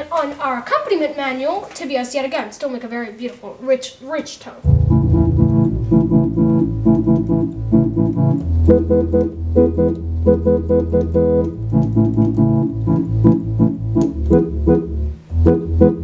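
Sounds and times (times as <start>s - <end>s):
electronic organ playing chords: 4.6s - 16.0s.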